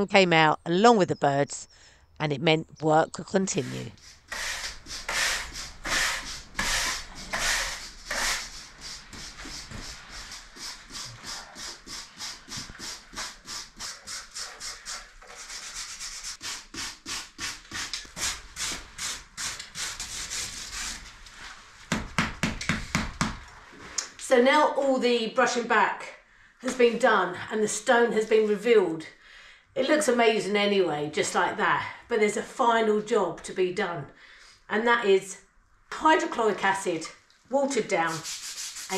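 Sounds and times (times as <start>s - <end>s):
stiff brushes scrubbing stone floor: 3.4s - 21.0s, 37.9s - 38.9s.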